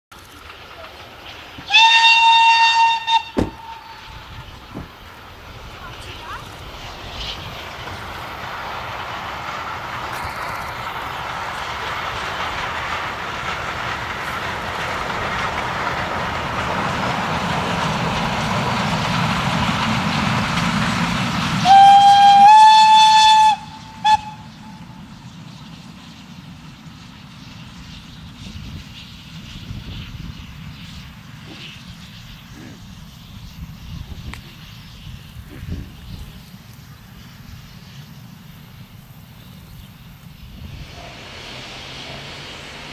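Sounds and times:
steam train running past: 0.1s - 42.9s
steam whistle blast: 1.6s - 4.2s, 21.6s - 24.9s, 40.9s - 42.5s.

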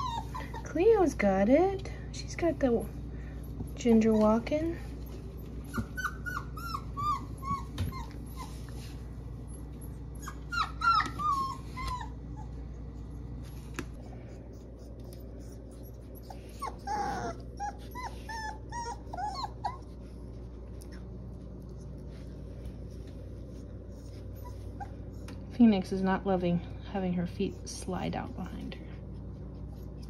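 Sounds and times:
puppies whimpering: 0.0s - 1.1s, 3.2s - 12.8s, 14.0s - 21.2s, 23.7s - 25.5s.

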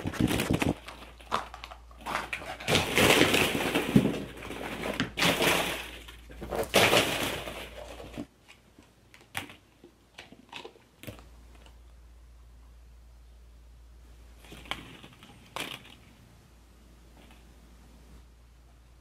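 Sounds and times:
plastic balls clattering: 0.0s - 11.8s, 14.4s - 16.2s.

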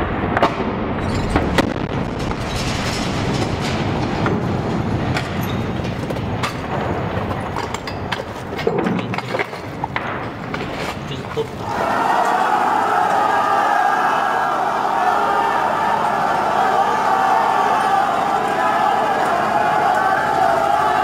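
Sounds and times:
distant explosion rumble: 0.0s - 8.2s.

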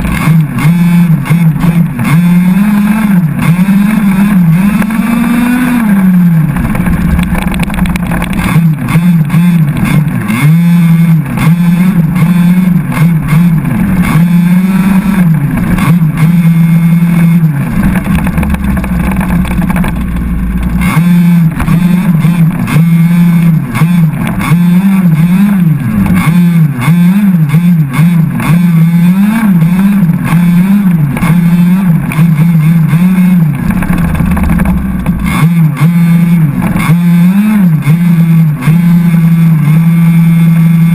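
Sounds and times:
small two-stroke engine revving: 0.0s - 40.9s.

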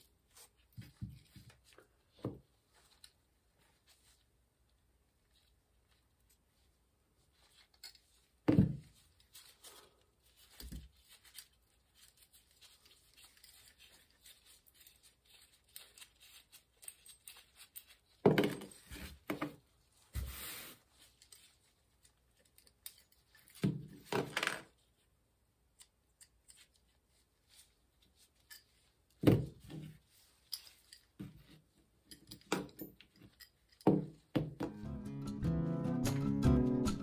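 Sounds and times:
faint handling sounds: 0.0s - 34.6s
small metal parts clicking and knocking: 7.5s - 8.3s, 10.4s - 19.3s, 21.1s - 24.7s, 32.0s - 34.3s.

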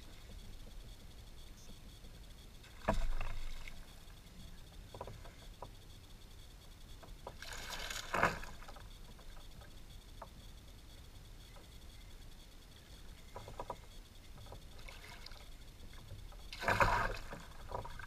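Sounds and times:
rod and reel clicks: 0.0s - 18.0s.

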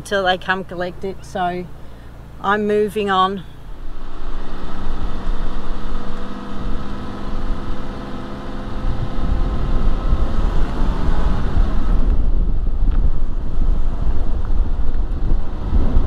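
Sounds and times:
van engine humming: 0.0s - 16.0s
wind noise: 3.7s - 16.0s.

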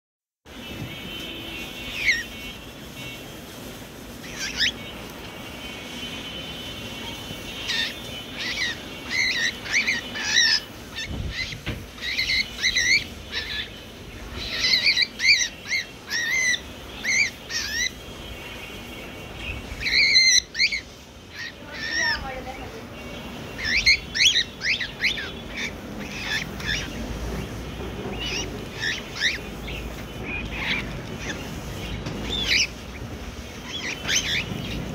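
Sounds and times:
cockatiel sharp calls: 1.8s - 2.3s, 4.2s - 5.0s, 7.6s - 18.0s, 19.8s - 22.2s, 23.5s - 34.9s.

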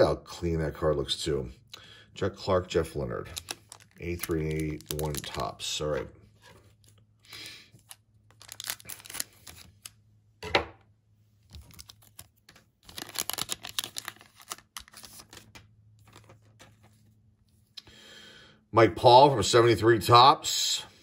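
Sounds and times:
plastic wrapper crinkling: 3.2s - 5.9s, 7.8s - 10.0s, 11.4s - 16.8s.

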